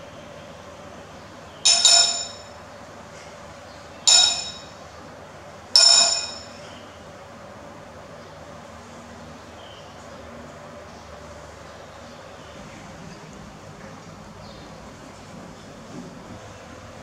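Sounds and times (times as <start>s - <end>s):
metal spoon clinking on dishes: 1.7s - 2.6s, 4.1s - 4.8s, 5.8s - 6.8s.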